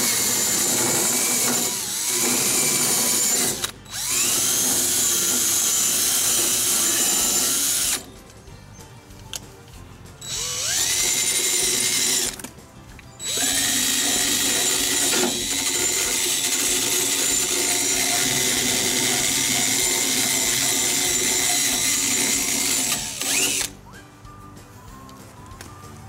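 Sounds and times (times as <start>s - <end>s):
drill wire brush scrubbing metal: 0.0s - 8.1s, 10.2s - 12.4s, 13.2s - 23.7s.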